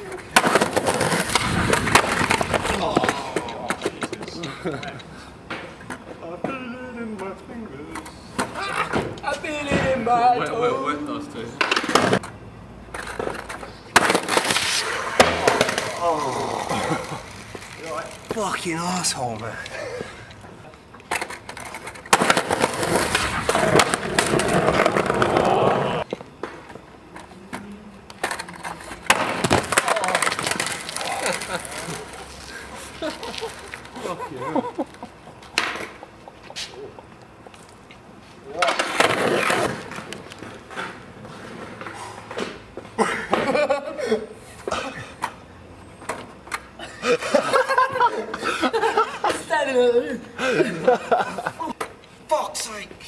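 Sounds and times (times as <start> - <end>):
skateboard rolling on concrete: 0.0 - 18.6, 19.2 - 52.2
laughter: 4.4 - 5.1, 33.0 - 37.0, 43.0 - 44.4, 46.8 - 49.5, 50.4 - 51.8
skater slamming: 14.0 - 16.3
voices: 15.5 - 21.1.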